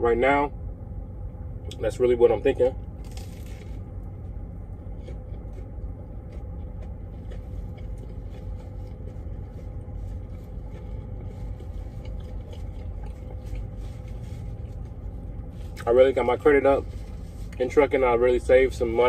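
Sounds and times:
truck engine idling: 0.0 - 19.0
chewing clicks: 5.0 - 13.8.

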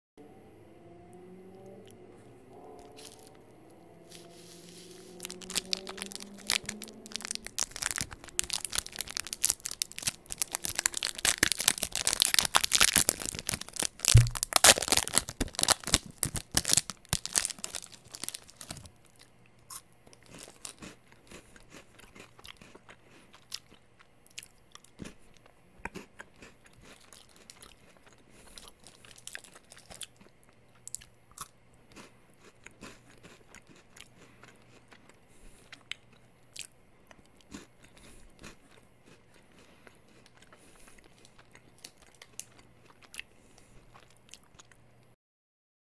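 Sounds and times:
plastic wrapper crinkling: 5.0 - 19.2, 20.3 - 20.8
thump: 14.2 - 14.4.

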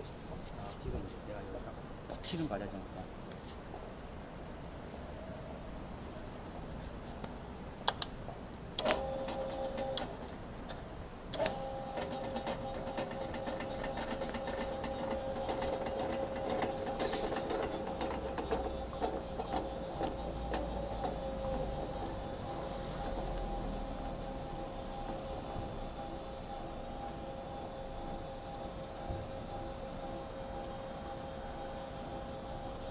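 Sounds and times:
mechanical rattle: 11.4 - 23.2
brake lathe motor whining: 11.4 - 32.9.

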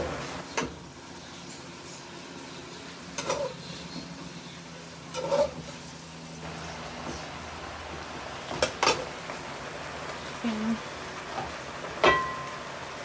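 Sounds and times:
vegetables sizzling in a frying pan: 0.0 - 13.0
metal spoon scraping a pan: 3.2 - 4.0, 5.1 - 5.9.

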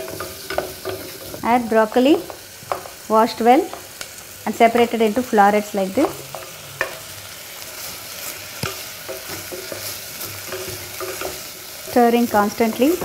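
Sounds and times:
vegetables frying in butter: 0.0 - 13.0
wooden spatula scraping pan: 7.7 - 13.0.

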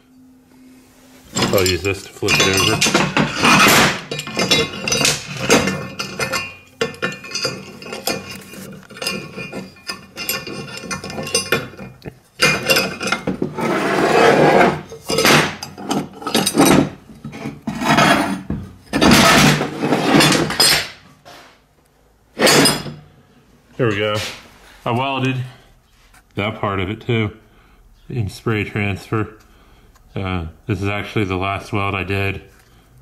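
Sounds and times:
steel clanking on welding table: 1.3 - 21.0.

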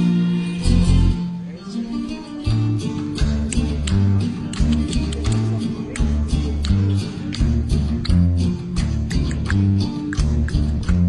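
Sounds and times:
acoustic bass guitar bass line: 0.0 - 11.0
recorded tropical band music: 0.0 - 11.0.

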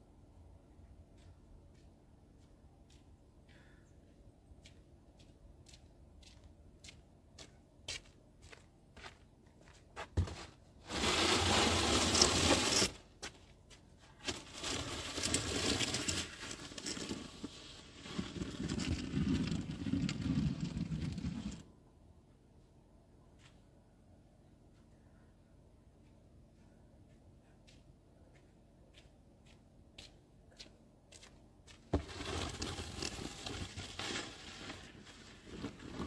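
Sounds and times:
snow shovel scraping on concrete: 10.8 - 13.0, 14.2 - 21.6, 32.0 - 36.0.

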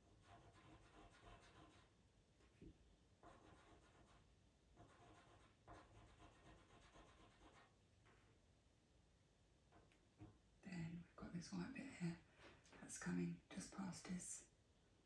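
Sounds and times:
pencil scratching on paper: 0.0 - 2.5, 3.2 - 7.8.

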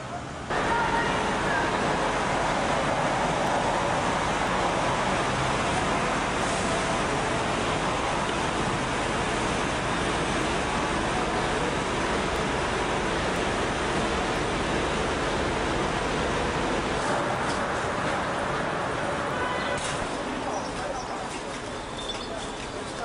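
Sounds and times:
city street traffic: 0.0 - 23.0.

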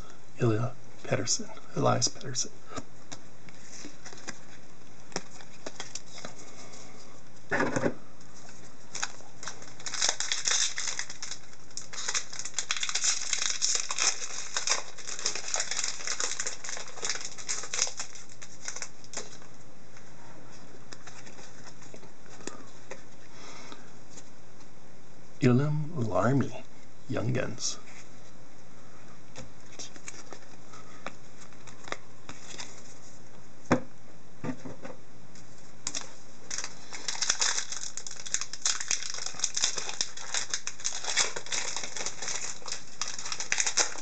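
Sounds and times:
pack wrapper crinkling and tearing: 5.1 - 6.3, 8.9 - 19.5, 29.8 - 30.6, 35.8 - 44.0.

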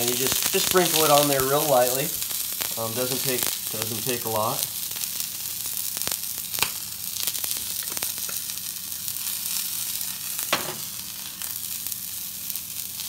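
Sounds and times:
meat sizzling in oil: 0.0 - 13.0.

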